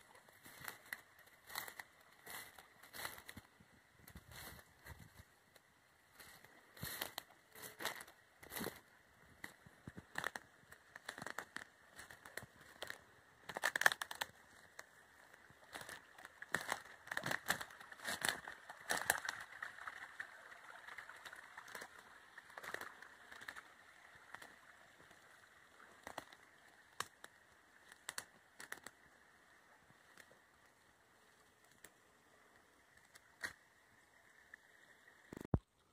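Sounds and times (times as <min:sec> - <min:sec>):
small stream trickling: 0:00.0 - 0:35.9
brushing undergrowth: 0:00.4 - 0:03.5, 0:04.1 - 0:05.2, 0:06.1 - 0:08.8, 0:09.5 - 0:14.8, 0:15.6 - 0:19.5
footsteps crunching through leaves: 0:00.4 - 0:03.5, 0:04.1 - 0:05.3, 0:06.1 - 0:08.8, 0:11.0 - 0:14.2, 0:15.6 - 0:19.4.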